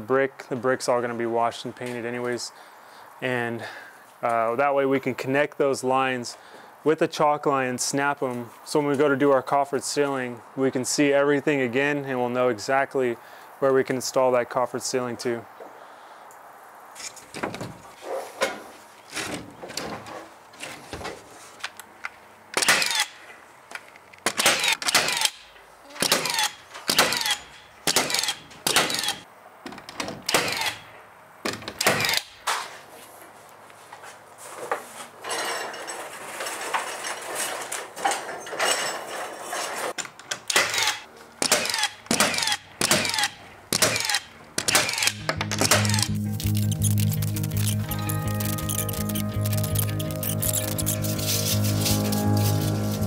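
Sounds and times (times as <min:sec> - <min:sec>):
nail gun firing into wood: 0:22.6 - 0:23.2, 0:24.2 - 0:32.6, 0:40.0 - 0:46.1.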